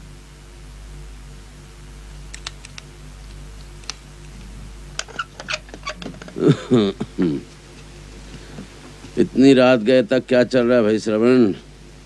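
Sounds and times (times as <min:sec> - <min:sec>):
low steady hum: 0:00.0 - 0:12.0
soft clicks: 0:02.3 - 0:04.4.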